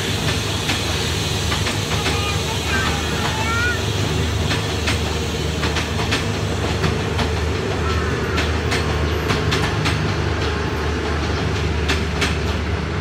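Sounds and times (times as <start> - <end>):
train low rumble: 0.0 - 13.0
train wheels clicking on rail joints: 0.0 - 13.0.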